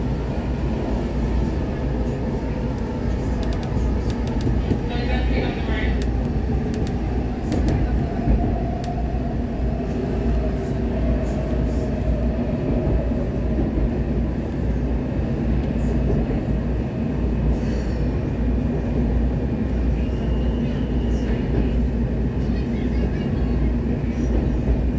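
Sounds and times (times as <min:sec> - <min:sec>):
train wheels rumbling on rails: 0:00.0 - 0:24.9.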